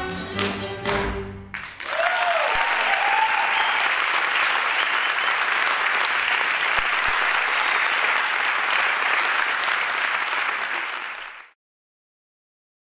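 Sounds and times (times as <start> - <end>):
audience applauding: 1.5 - 11.6.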